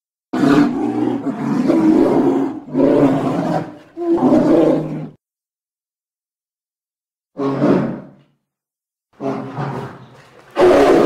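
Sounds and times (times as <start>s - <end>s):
deep animal roars: 0.3s - 5.2s, 7.3s - 8.2s, 9.2s - 11.0s.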